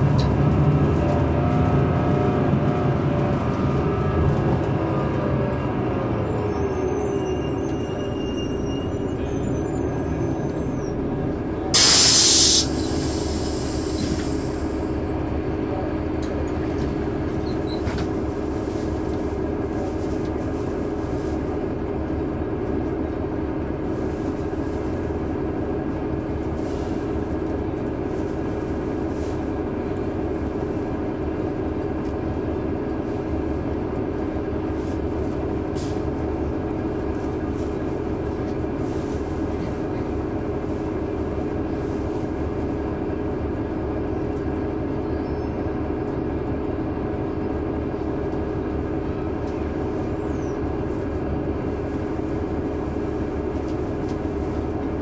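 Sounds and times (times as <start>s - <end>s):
bus diesel engine droning: 0.0s - 55.0s
air hiss burst: 11.8s - 14.8s.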